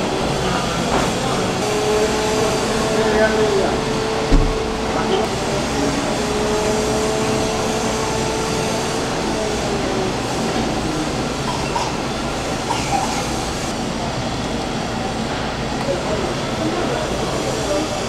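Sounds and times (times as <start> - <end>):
market din rumble: 0.0 - 18.0.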